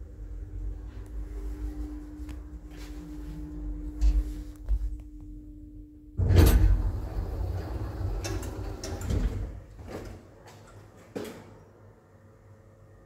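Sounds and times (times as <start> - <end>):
steady hum: 0.0 - 9.8
footsteps: 0.8 - 5.1
elevator doors sliding open: 6.2 - 10.4.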